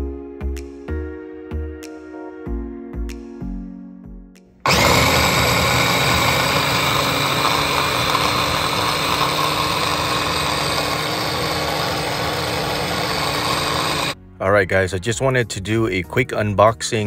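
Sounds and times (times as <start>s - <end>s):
food chopper motor running: 4.7s - 14.2s
soft background music: 14.2s - 17.0s.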